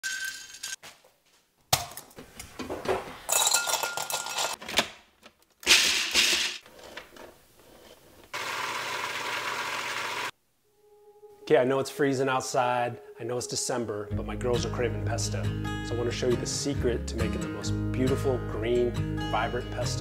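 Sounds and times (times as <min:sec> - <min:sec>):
ice cubes clinking in glass bowl: 0:03.3 - 0:04.6.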